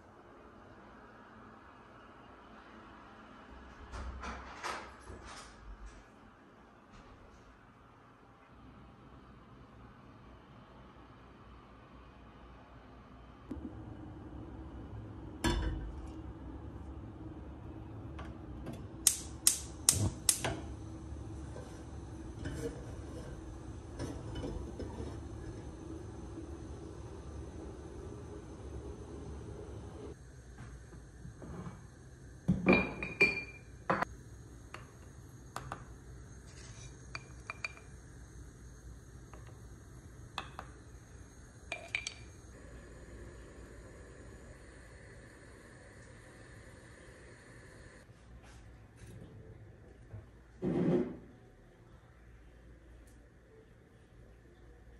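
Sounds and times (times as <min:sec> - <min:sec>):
spark igniter clicking: 0:19.0 - 0:20.7.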